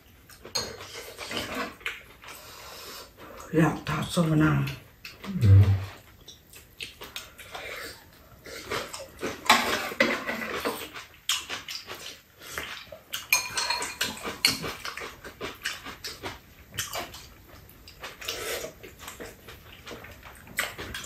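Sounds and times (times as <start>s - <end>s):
people chewing: 0.0s - 3.5s, 4.6s - 21.0s
utensils clicking against bowls: 13.3s - 14.8s.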